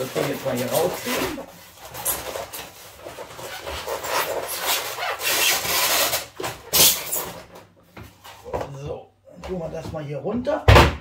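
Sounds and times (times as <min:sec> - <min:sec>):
plastic scraping against foam: 0:00.0 - 0:07.5.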